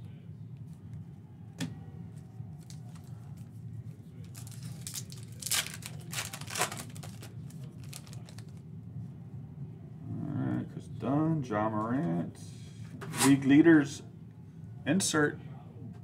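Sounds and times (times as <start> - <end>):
foil wrapper tearing and crinkling: 4.3 - 8.6.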